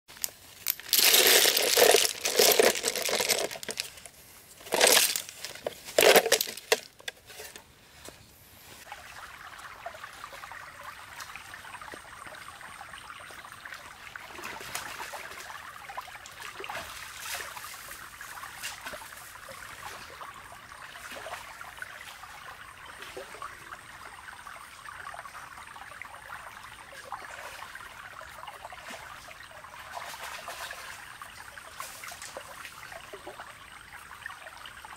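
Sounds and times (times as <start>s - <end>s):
plastic bag crinkling: 0.1s - 7.0s
stream trickling: 0.1s - 34.9s.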